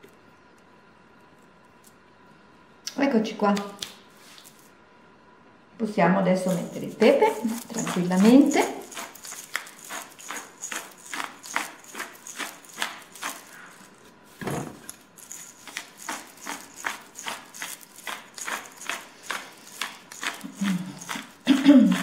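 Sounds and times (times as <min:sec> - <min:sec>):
pepper mill grinding: 0:06.4 - 0:14.1, 0:14.7 - 0:22.0.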